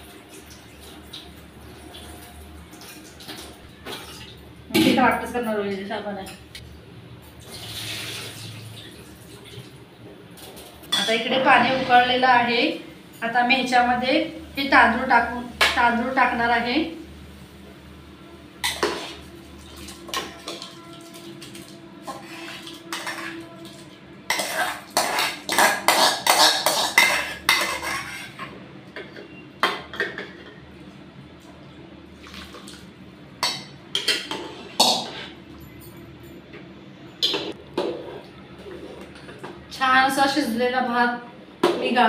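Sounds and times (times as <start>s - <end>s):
spoon scraping and clinking on pot: 22.0s - 23.4s, 24.3s - 28.5s.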